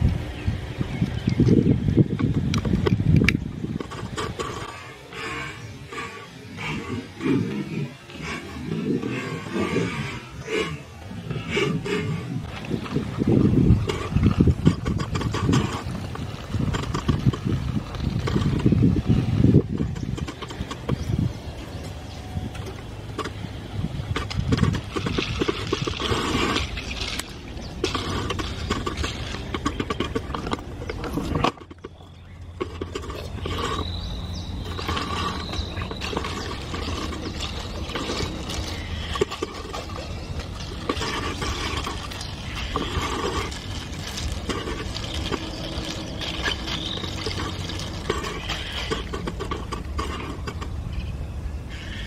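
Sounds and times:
straw stirring crushed ice: 24.1s - 51.1s.

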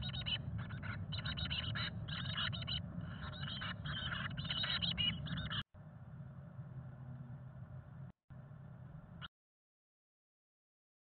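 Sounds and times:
nestlings begging calls: 0.0s - 5.6s.

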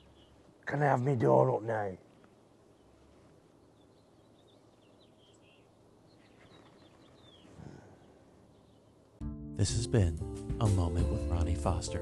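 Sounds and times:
bird chirps: 0.0s - 0.6s, 2.6s - 9.2s.

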